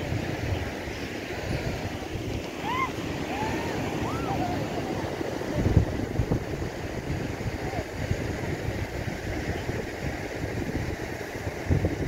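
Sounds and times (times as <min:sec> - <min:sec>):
sea surf: 0:00.0 - 0:12.0
wind on microphone: 0:00.0 - 0:12.0
short high rising-and-falling calls: 0:02.6 - 0:05.0.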